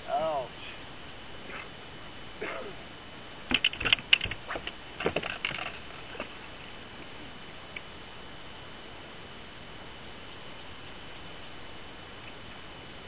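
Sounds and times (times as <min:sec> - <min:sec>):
fishing tackle clicking and clattering: 0:03.5 - 0:06.2.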